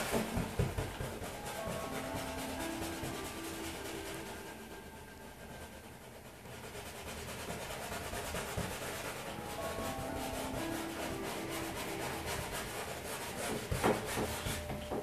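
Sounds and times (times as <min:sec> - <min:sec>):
palette knife scraping canvas: 0:05.5 - 0:14.9.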